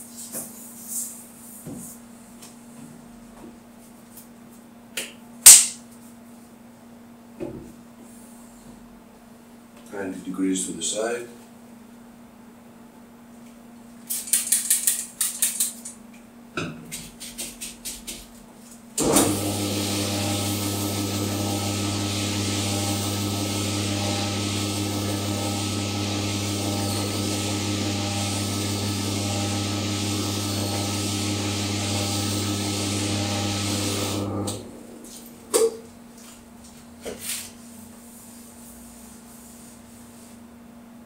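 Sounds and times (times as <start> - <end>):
quick clicks and rattles: 14.1 - 15.9
motor starting thump: 19.0 - 34.9
motor humming: 19.0 - 35.2.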